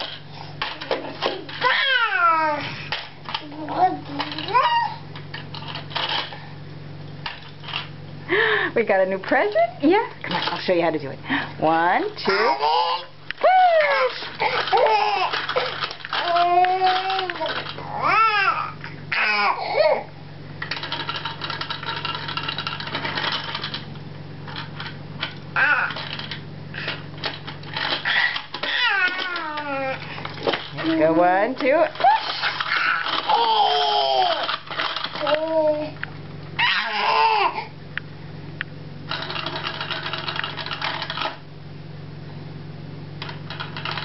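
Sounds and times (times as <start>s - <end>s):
toddler squealing: 4.5s - 5.0s, 36.6s - 37.6s.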